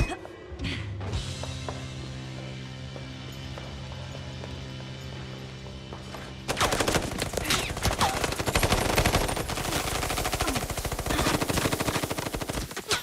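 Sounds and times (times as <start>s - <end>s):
rapid automatic gunfire: 6.5s - 12.9s.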